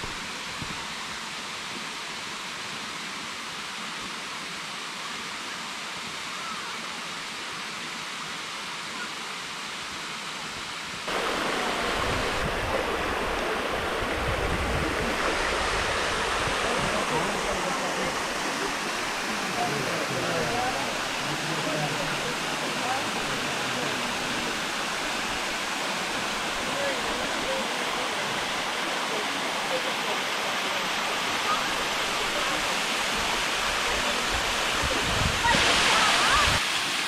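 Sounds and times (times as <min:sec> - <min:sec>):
distant waterfall rushing: 0:00.0 - 0:37.0
water splashing over rocks: 0:11.1 - 0:37.0.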